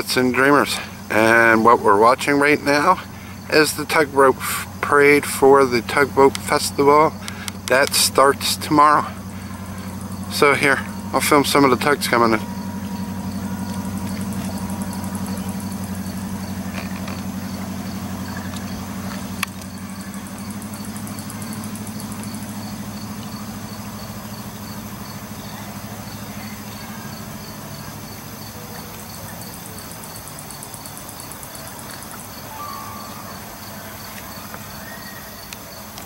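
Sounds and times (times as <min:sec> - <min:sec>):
engine running: 0:00.0 - 0:36.0.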